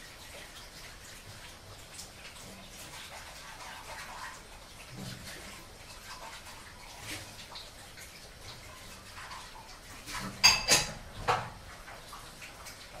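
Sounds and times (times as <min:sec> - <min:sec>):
dishes washed in water: 0:00.0 - 0:13.0
dishware clinking: 0:10.4 - 0:11.0.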